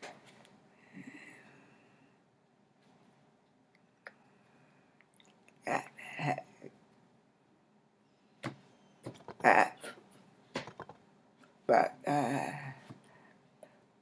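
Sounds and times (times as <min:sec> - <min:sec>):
woman's voice: 0:09.4 - 0:09.9, 0:11.7 - 0:12.8.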